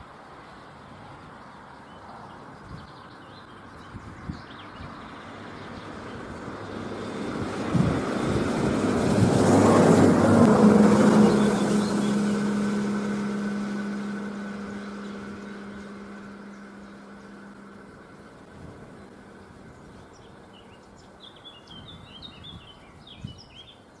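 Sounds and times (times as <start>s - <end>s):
diesel engine drone: 0.0s - 21.8s
train wheels rumbling on rails: 5.3s - 19.1s.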